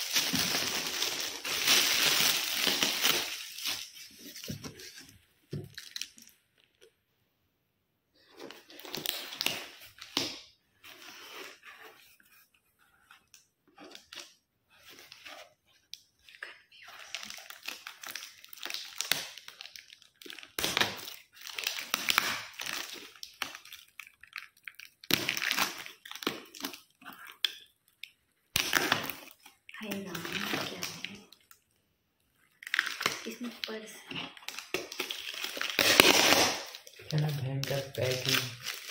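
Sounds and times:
paper crumpling: 0:32.6 - 0:38.9
cardboard box tearing: 0:35.2 - 0:36.8.

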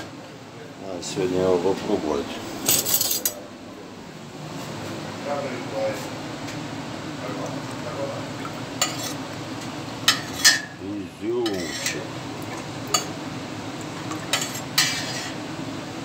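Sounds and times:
steady low hum: 0:00.0 - 0:16.0
utensils clinking against dishes: 0:02.6 - 0:03.4, 0:08.8 - 0:09.2, 0:10.0 - 0:10.8, 0:11.4 - 0:13.2, 0:14.1 - 0:15.4.

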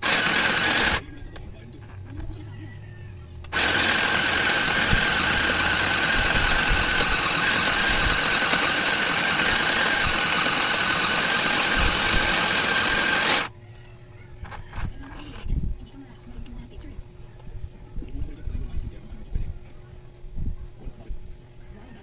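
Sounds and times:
sewing machine motor whir: 0:00.0 - 0:01.0, 0:03.5 - 0:13.5.

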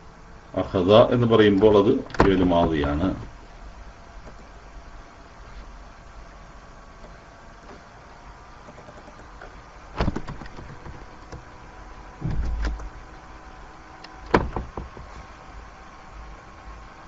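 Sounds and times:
faint steady hum: 0:00.0 - 0:17.0
small clicks: 0:08.6 - 0:11.4
sudden knocks: 0:12.2 - 0:12.8, 0:14.3 - 0:15.2.

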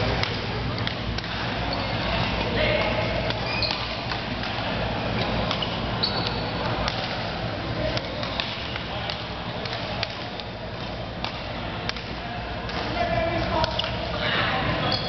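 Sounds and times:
rackets hitting shuttlecock: 0:00.0 - 0:04.6, 0:05.2 - 0:14.2
background chatter: 0:00.0 - 0:15.0
shoes squeaking on wooden floor: 0:03.4 - 0:04.0, 0:05.6 - 0:06.6.

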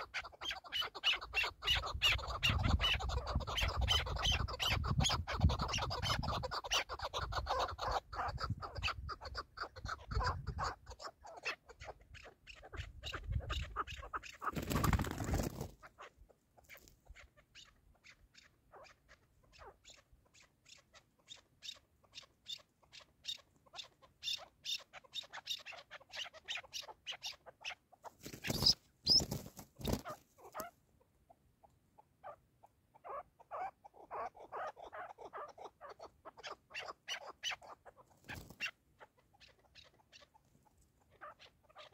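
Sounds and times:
partridge clucking call: 0:00.0 - 0:30.7.

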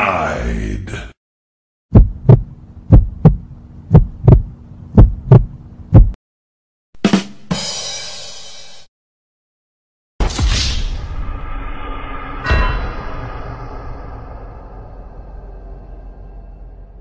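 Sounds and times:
heartbeat thumps: 0:01.9 - 0:06.2
low steady hum: 0:02.0 - 0:06.2.

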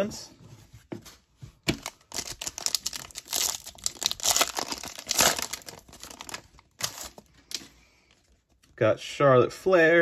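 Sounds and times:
foil wrapper crinkling and tearing: 0:01.7 - 0:07.7.

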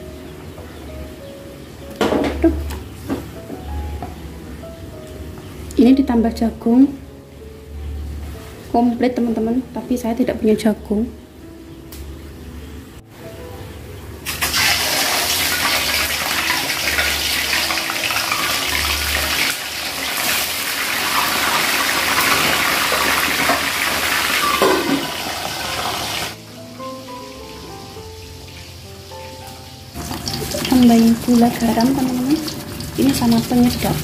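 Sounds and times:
light background music: 0:00.0 - 0:34.0
fish deep-frying sizzle: 0:14.2 - 0:34.0.

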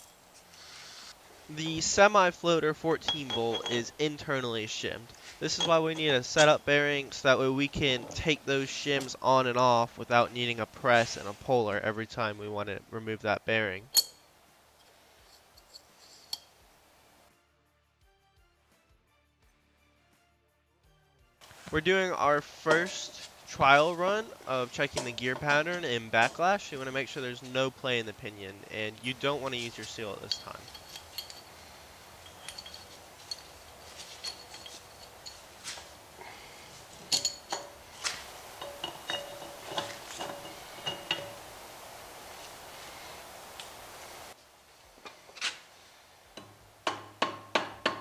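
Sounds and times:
metal-on-metal clink: 0:03.0 - 0:04.2, 0:05.5 - 0:06.6, 0:13.9 - 0:14.3, 0:29.0 - 0:35.5, 0:37.1 - 0:37.8, 0:38.6 - 0:41.5
steel parts clinking: 0:03.0 - 0:09.4, 0:13.9 - 0:16.6, 0:22.2 - 0:41.6.

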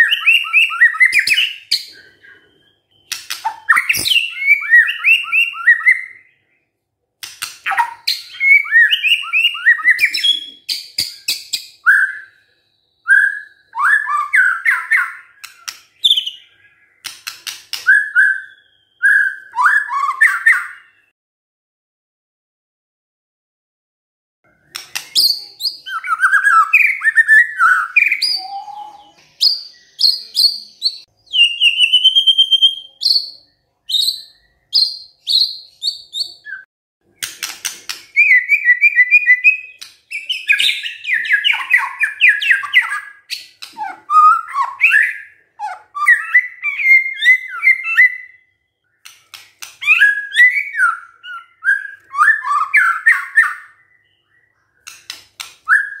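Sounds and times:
bird singing whistles and trills: 0:00.0 - 0:06.7, 0:07.4 - 0:21.1, 0:24.6 - 0:55.0, 0:55.6 - 0:56.0.

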